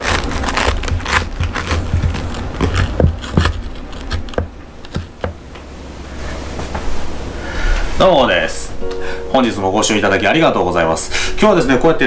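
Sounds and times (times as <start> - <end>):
knife sawing through toasted sandwich: 0.0 - 4.4.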